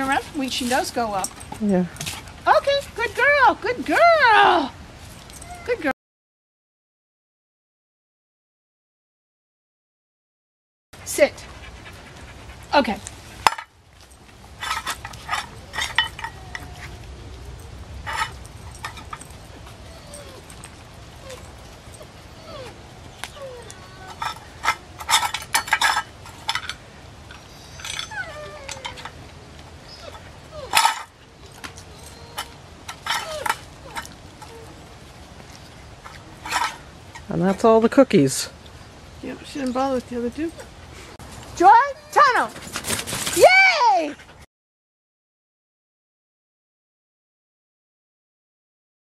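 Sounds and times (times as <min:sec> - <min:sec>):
clinks and rattles of metal tin: 0:24.2 - 0:26.8.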